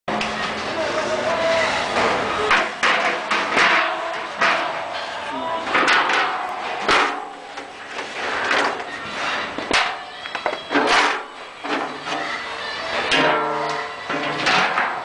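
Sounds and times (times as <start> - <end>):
metal cauldron clanking: 2.5 - 7.7.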